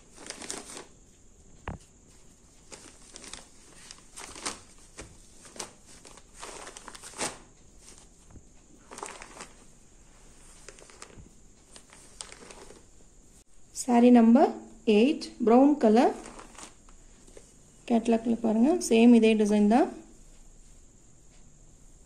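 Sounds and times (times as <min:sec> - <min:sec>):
cloth rustling: 0:00.0 - 0:01.0, 0:01.7 - 0:13.0, 0:16.1 - 0:17.6.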